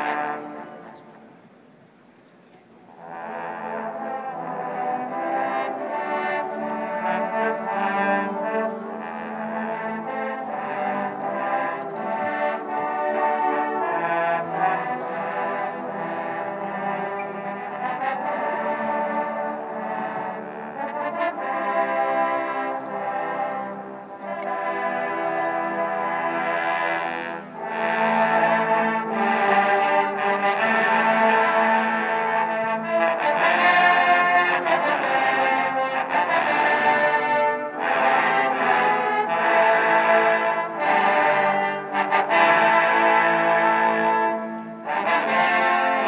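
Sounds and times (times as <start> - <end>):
marching band playing brass: 0.0 - 1.4, 2.9 - 46.0.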